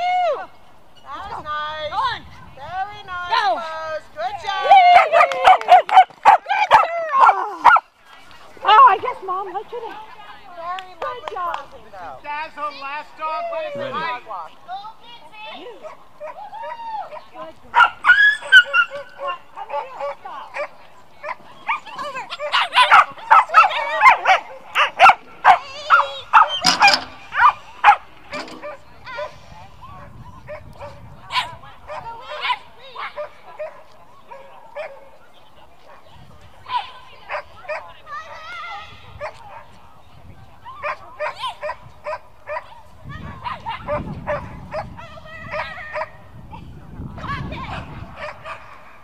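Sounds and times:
dog barking: 5.0 - 7.8, 22.4 - 28.0, 30.5 - 35.1, 43.4 - 44.9, 47.7 - 48.7
small dog barking: 22.4 - 28.0.

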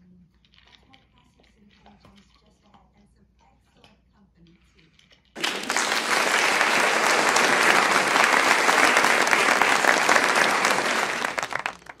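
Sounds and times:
crowd applause: 5.4 - 12.0.

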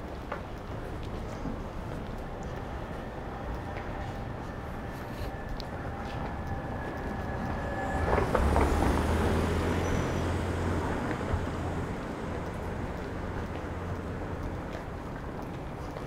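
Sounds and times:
car passing by: 5.2 - 14.1.

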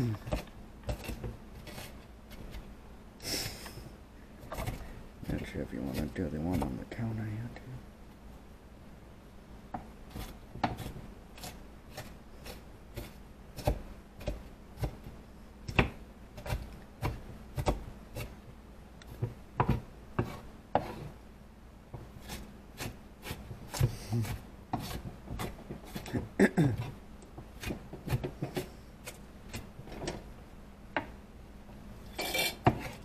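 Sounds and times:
knife chopping on cutting board: 0.2 - 1.9, 9.8 - 15.1, 15.7 - 18.3, 19.2 - 21.0, 22.2 - 26.3, 27.6 - 28.7.

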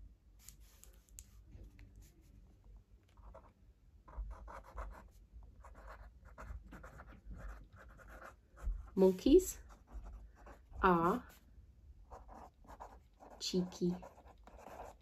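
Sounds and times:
pen scratching on paper: 4.1 - 11.4, 12.1 - 15.0.

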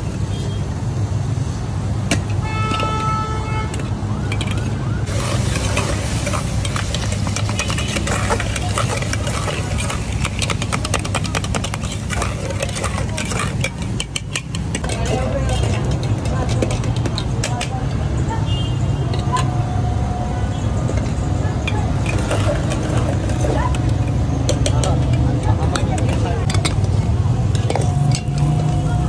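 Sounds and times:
metal tongs clinking on pots: 3.7 - 18.0, 20.9 - 29.0.

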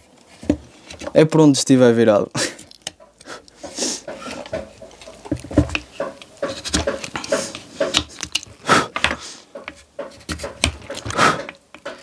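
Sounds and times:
knife scraping wood: 2.6 - 12.0.

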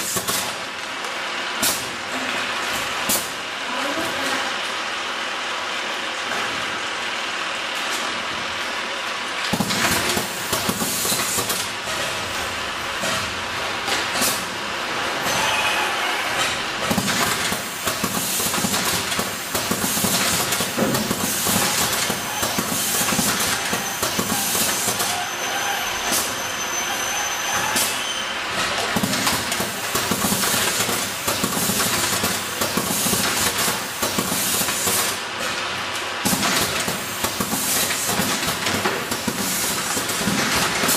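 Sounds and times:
packaging machines rattling: 9.5 - 40.9.

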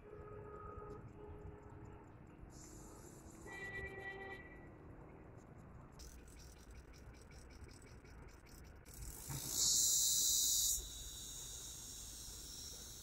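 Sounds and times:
insects buzzing: 8.8 - 13.0.

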